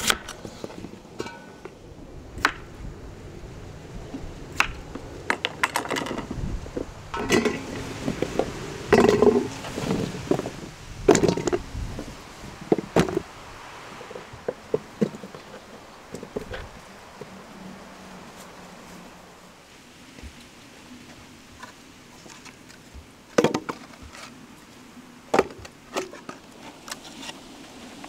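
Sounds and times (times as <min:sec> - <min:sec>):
cookware and utensils clinking: 0:07.2 - 0:07.8.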